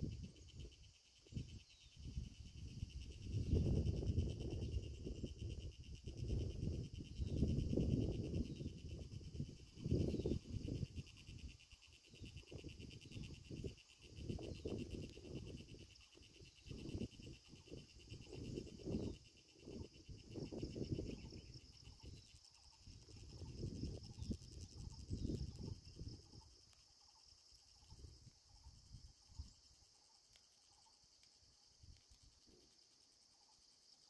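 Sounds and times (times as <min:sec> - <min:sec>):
wind gusts on microphone: 0:00.0 - 0:26.6
insects chirring: 0:00.0 - 0:34.0.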